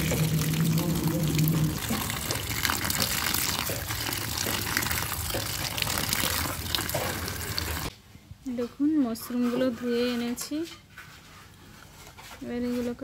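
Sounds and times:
water running: 0:00.0 - 0:07.9.

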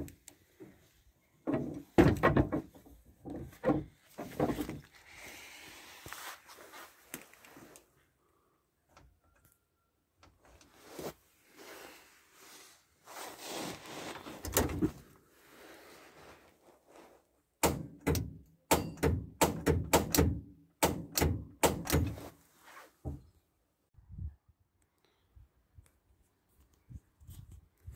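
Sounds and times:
rustling: 0:03.4 - 0:08.1, 0:10.4 - 0:17.4, 0:22.1 - 0:23.0.

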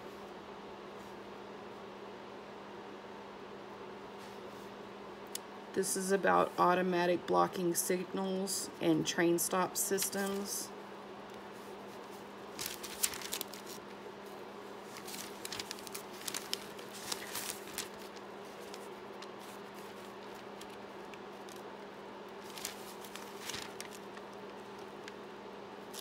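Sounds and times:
steady low hum: 0:00.0 - 0:26.0
paper pages rustling: 0:11.6 - 0:21.6, 0:22.4 - 0:25.2.

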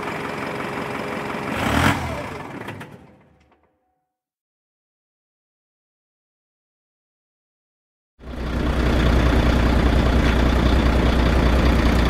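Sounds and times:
truck engine idling: 0:00.0 - 0:03.4, 0:08.2 - 0:12.0.

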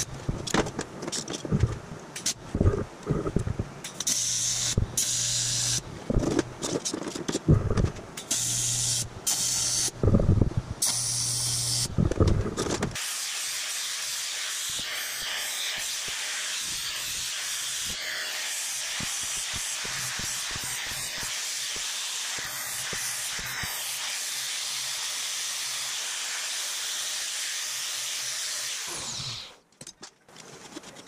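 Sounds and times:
welder arc buzzing: 0:02.3 - 0:06.5, 0:07.5 - 0:12.2, 0:13.0 - 0:29.6
steady hiss: 0:13.0 - 0:28.7.

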